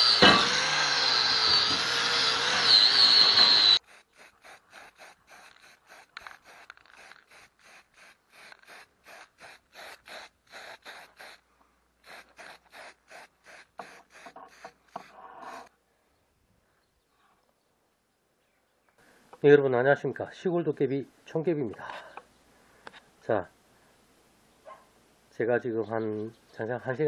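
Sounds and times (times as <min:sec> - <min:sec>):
angle grinder grinding steel: 0:00.0 - 0:15.7.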